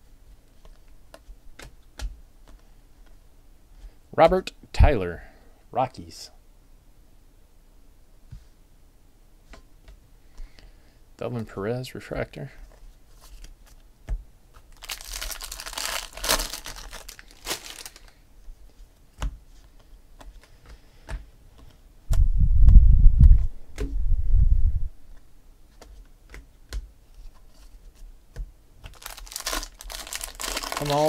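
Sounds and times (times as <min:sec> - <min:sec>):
cards rustling: 0:12.6 - 0:13.8, 0:14.6 - 0:18.9, 0:28.8 - 0:31.0
deep rumble: 0:22.1 - 0:25.0.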